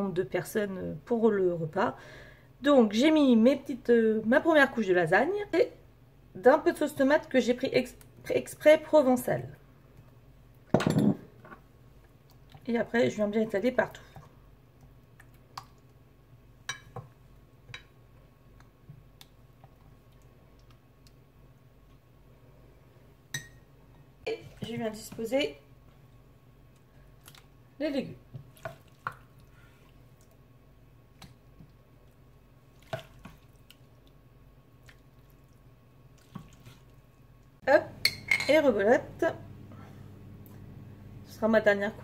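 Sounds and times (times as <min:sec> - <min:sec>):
soft wet plops: 0:14.0 - 0:16.0, 0:26.7 - 0:27.6, 0:28.2 - 0:30.4, 0:31.1 - 0:37.6.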